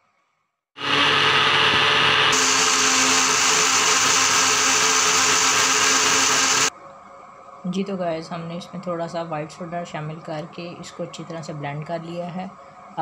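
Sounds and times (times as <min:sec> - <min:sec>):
electric blender running: 0:00.8 - 0:06.7.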